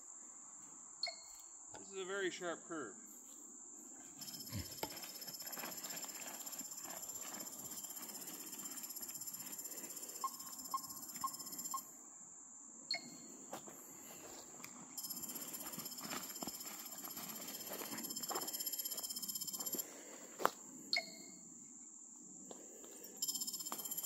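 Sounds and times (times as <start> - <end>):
insects chorus: 0.0 - 24.0
short electronic beeps: 1.0 - 1.4, 10.2 - 11.8, 12.9 - 13.3, 20.9 - 21.4, 23.2 - 24.0.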